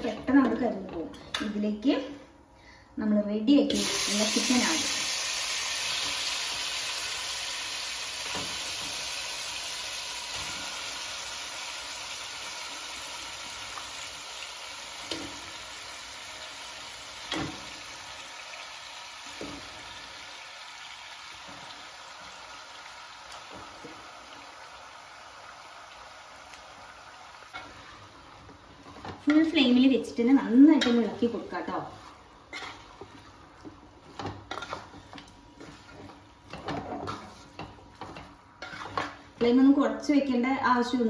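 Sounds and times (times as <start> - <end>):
chicken sizzling in hot oil: 3.7 - 39.4.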